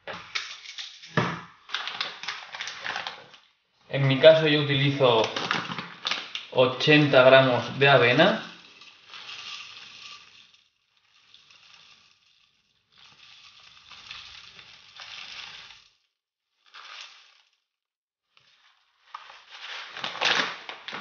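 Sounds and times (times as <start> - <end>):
bag crinkling: 1.7 - 3.4, 4.2 - 16.0, 19.1 - 21.0
oats pouring into plastic beaker: 4.0 - 17.7, 18.3 - 20.9.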